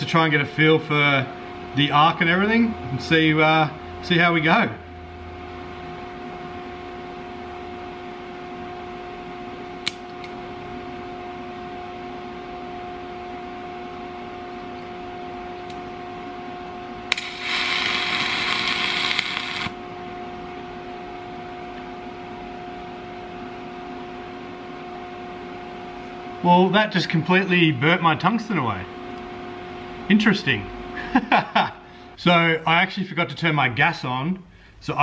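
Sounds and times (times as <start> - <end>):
steady background hum: 0.0 - 35.0
welding arc hissing: 17.1 - 19.8.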